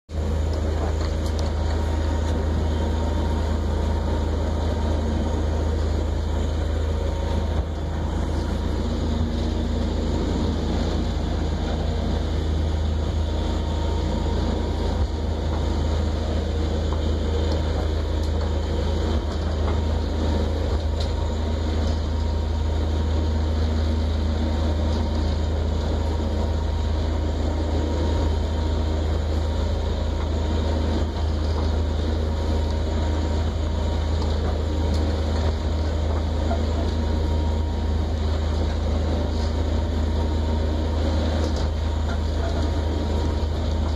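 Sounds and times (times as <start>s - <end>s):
boat engine deep drone: 0.1s - 43.9s.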